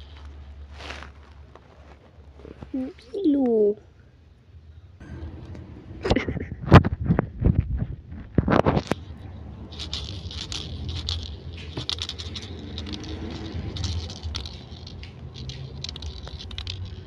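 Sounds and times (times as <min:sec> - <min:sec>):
low hum: 0:03.8 - 0:17.0
kittens pawing and scrambling: 0:06.0 - 0:17.0.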